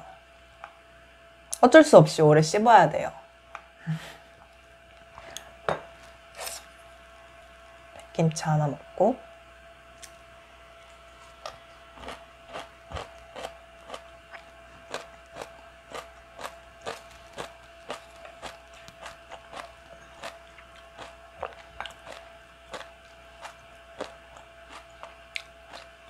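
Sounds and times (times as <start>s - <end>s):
person chewing crunchy vegetables: 10.8s - 26.0s.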